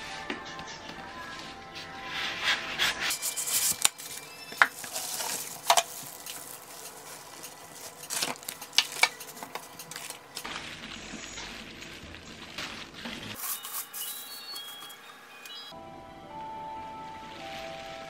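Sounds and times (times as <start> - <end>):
cardboard and foam rustling: 1.0 - 15.0
plastic wrap crinkling: 3.1 - 15.6.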